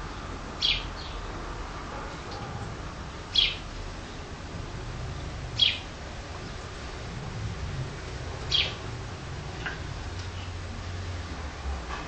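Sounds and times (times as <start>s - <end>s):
sparrow chirping: 0.6s - 1.3s, 3.3s - 3.7s, 5.2s - 5.9s, 8.4s - 9.0s.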